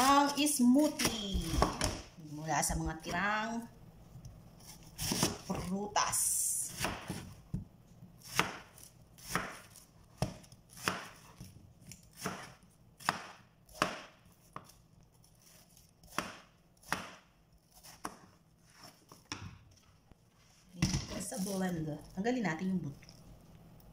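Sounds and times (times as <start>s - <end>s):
knife chopping on plastic board: 5.0s - 5.5s, 8.2s - 11.5s, 12.1s - 14.8s, 16.0s - 18.4s.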